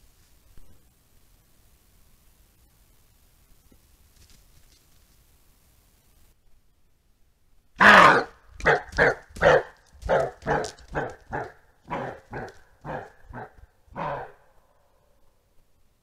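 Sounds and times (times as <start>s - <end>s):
deer alarm barks: 7.8s - 14.5s.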